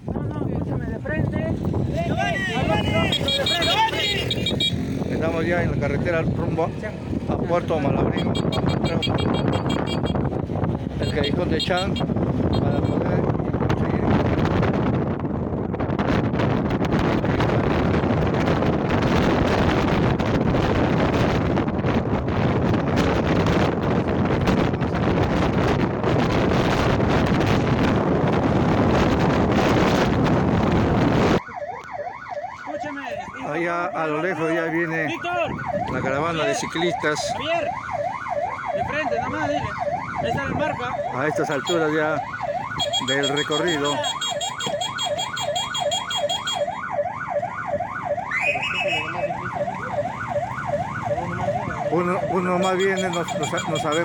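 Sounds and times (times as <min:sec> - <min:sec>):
wind buffeting microphone: 0:00.0 - 0:33.4, 0:35.0 - 0:43.1, 0:46.7 - 0:52.6
siren wailing: 0:02.1 - 0:05.4, 0:15.6 - 0:54.0.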